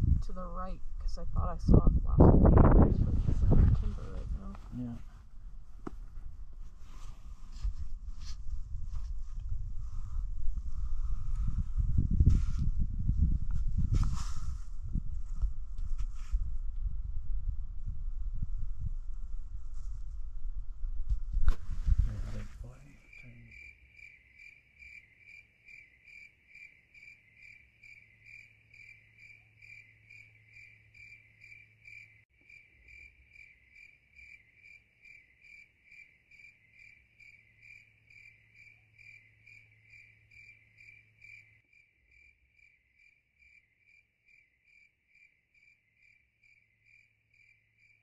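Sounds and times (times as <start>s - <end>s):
cricket chirping: 22.2s - 48.0s.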